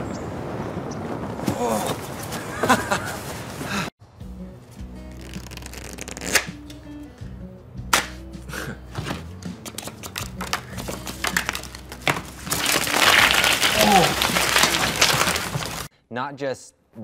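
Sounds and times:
light background music: 4.1 - 12.4
playing cards snapping: 5.2 - 6.8, 7.9 - 8.2, 9.6 - 15.9.

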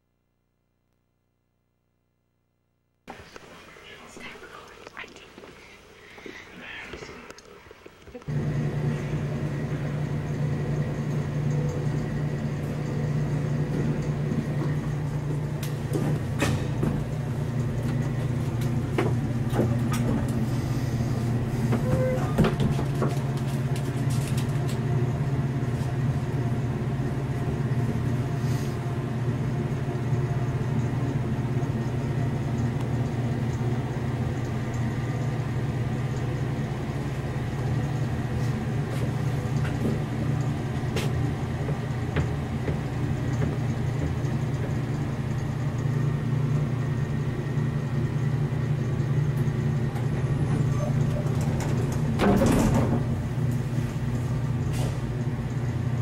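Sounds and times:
lift humming and rumbling: 3.1 - 56.0.

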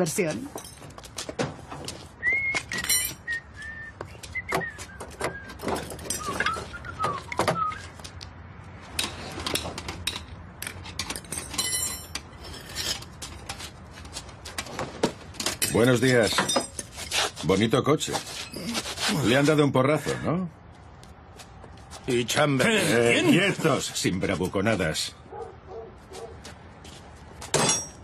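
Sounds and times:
person whistling a tune: 2.2 - 8.0
metal hand tools clinking: 2.7 - 3.3, 10.0 - 13.1, 15.4 - 17.1.

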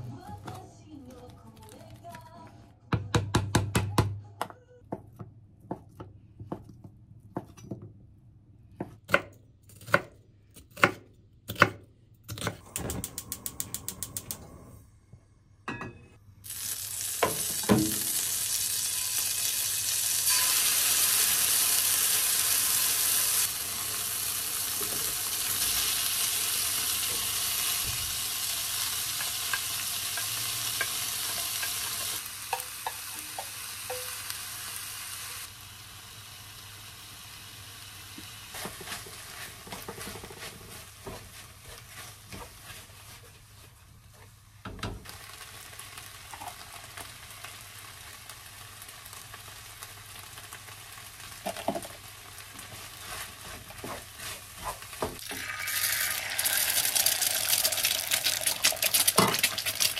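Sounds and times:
food sizzling in a pan: 16.4 - 43.6, 45.0 - 59.9.

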